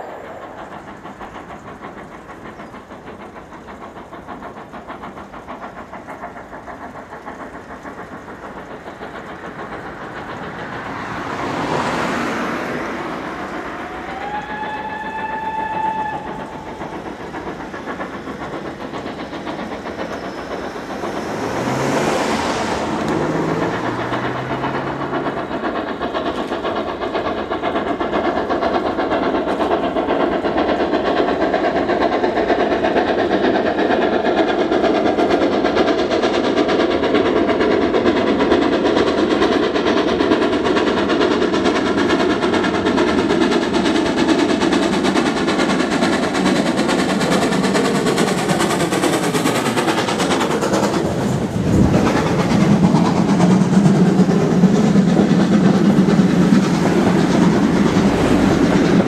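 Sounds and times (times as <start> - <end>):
rushing noise: 0.0 - 2.3, 8.6 - 29.2, 43.6 - 59.0
steam locomotive approaching: 0.0 - 59.0
steam whistle: 13.2 - 17.0.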